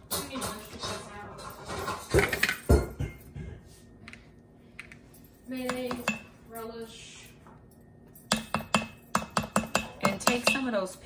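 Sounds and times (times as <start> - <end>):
spoon clinking against metal pot: 5.6 - 6.4, 8.2 - 10.8.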